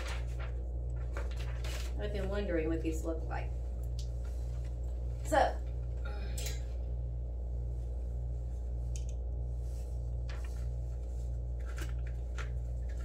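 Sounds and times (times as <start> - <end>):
packet rustling: 0.0 - 2.4, 11.5 - 13.0
low pulsing hum: 0.0 - 13.0.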